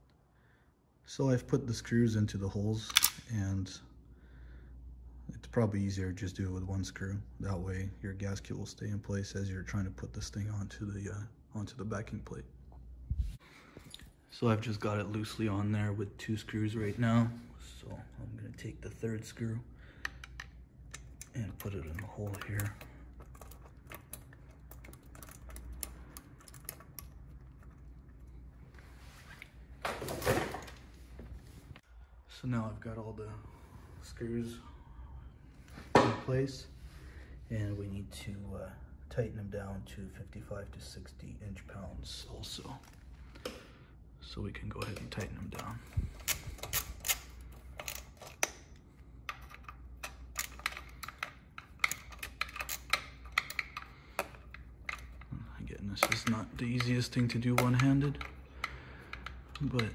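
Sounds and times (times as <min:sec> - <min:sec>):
low steady hum: 0:00.0 - 0:59.9
screw and metal parts clicking: 0:20.0 - 0:28.0, 0:44.8 - 0:59.9.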